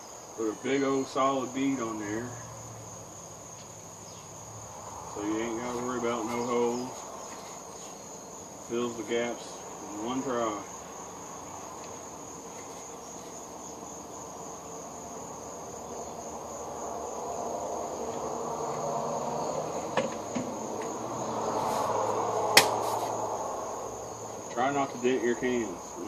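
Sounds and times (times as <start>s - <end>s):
crickets chirring: 0.0s - 26.0s
sharp click: 22.6s - 22.8s.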